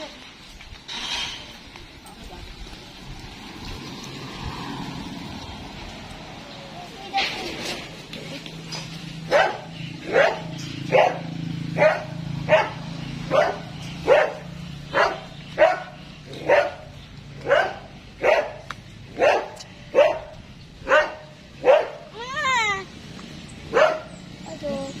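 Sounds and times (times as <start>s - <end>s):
dog barking: 9.3s - 22.1s, 23.7s - 24.2s.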